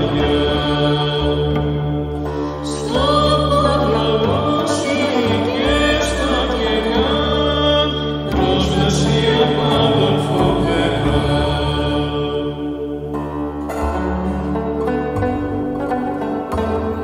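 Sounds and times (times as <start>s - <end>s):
person singing chant-like line: 0.0s - 14.2s
instrumental accompaniment with low drones: 0.0s - 17.0s.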